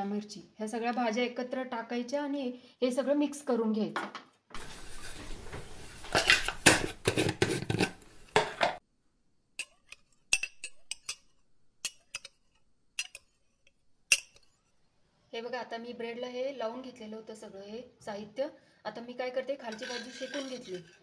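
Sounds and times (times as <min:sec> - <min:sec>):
spoon stirring batter in steel bowl: 0:04.6 - 0:08.8, 0:09.6 - 0:14.9, 0:19.6 - 0:21.0
spoon clicking against bowl: 0:13.0 - 0:13.3.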